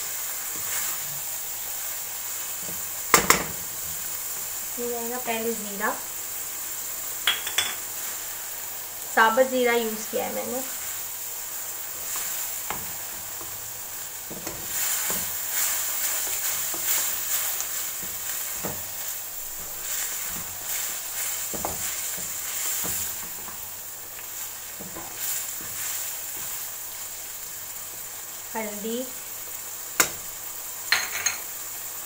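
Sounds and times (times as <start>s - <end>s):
meat sizzling in a wok: 0.0s - 32.0s
wooden spatula scraping a pan: 11.9s - 26.8s.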